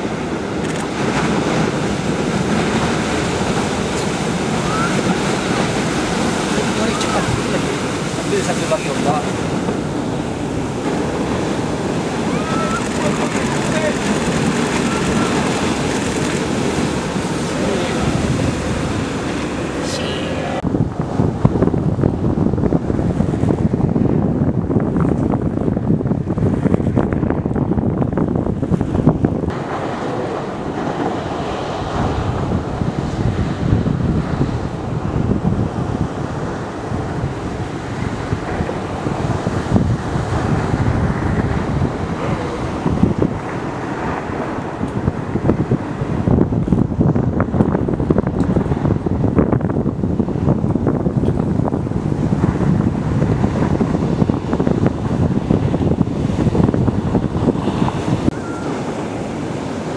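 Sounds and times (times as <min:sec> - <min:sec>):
ocean waves breaking: 0:00.0 - 0:59.9
wind buffeting microphone: 0:00.0 - 0:59.9.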